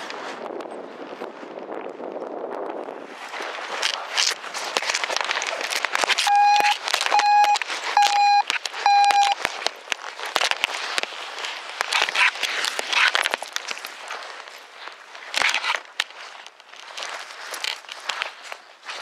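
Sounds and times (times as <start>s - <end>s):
rustling of handled camera gear: 3.3s - 19.0s
short electronic beeps: 6.3s - 9.4s.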